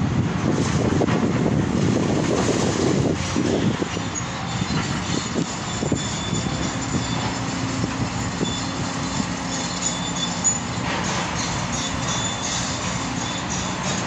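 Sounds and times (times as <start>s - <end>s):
excavator diesel engine running: 0.0s - 14.0s
high-pitched metallic squeals: 3.4s - 14.0s.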